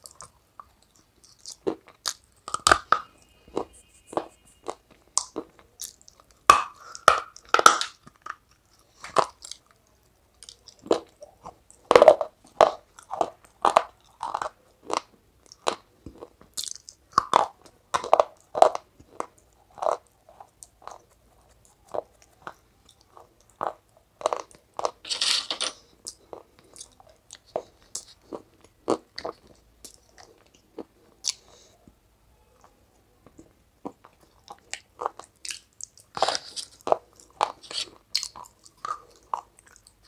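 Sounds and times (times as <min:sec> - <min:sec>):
crunching and chewing: 0:00.0 - 0:31.8, 0:32.6 - 0:40.0
hand scraping through pieces: 0:25.0 - 0:25.8, 0:37.6 - 0:37.9.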